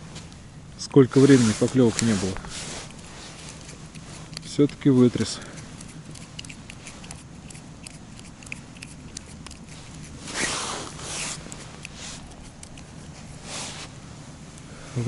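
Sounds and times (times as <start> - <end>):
jacket rustling: 1.0 - 6.1, 9.3 - 14.6
faint handling clicks: 1.8 - 10.2.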